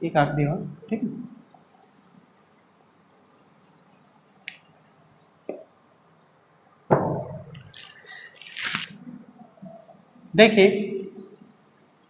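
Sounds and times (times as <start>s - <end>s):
loud thump: 6.9s - 7.5s.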